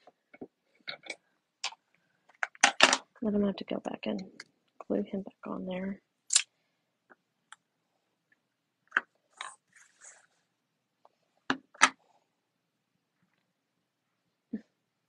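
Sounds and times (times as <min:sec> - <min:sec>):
paper rustling: 0:09.3 - 0:10.4.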